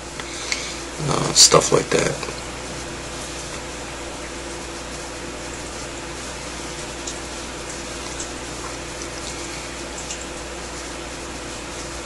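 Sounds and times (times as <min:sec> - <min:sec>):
background hiss with low hum: 0:00.0 - 0:12.0.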